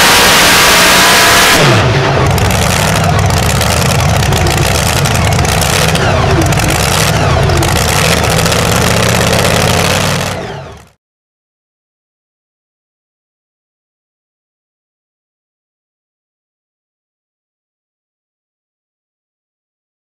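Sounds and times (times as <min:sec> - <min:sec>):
truck engine roaring then idling: 0:00.0 - 0:11.0.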